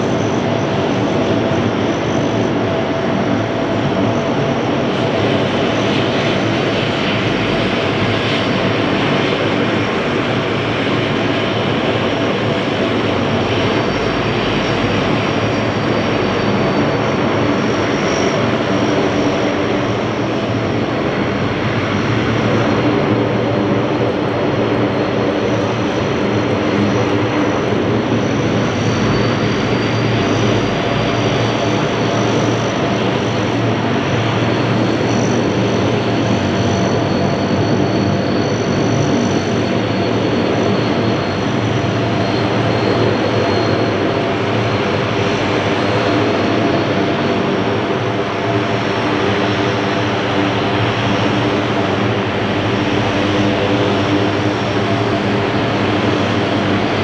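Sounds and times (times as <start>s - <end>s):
high turbine whine: 0.0s - 57.0s
propeller drone: 0.0s - 57.0s.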